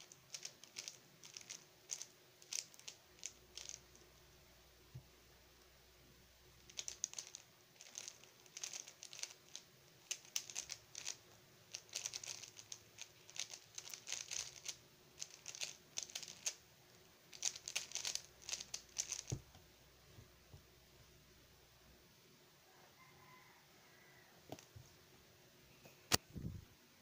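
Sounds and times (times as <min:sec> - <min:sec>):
plastic cube layers clicking: 0:00.0 - 0:04.0, 0:06.6 - 0:16.6, 0:17.3 - 0:19.4.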